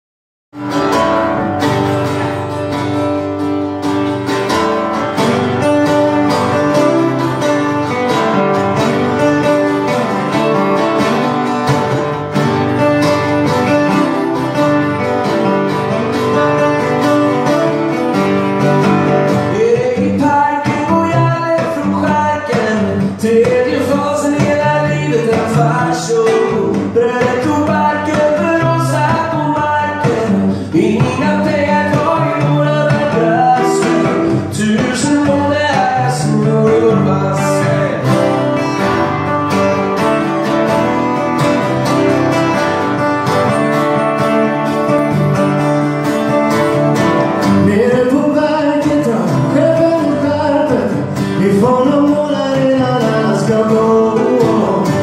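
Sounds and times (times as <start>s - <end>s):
acoustic guitars playing: 0.5s - 55.0s
man singing: 18.6s - 39.4s, 47.2s - 55.0s.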